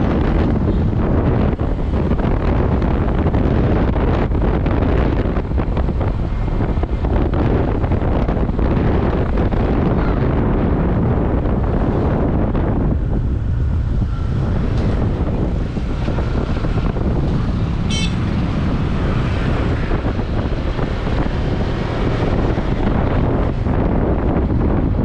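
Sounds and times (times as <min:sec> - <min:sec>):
street traffic: 0:00.0 - 0:25.0
wind rumble on microphone: 0:00.0 - 0:25.0
high-pitched squeak: 0:17.9 - 0:18.2.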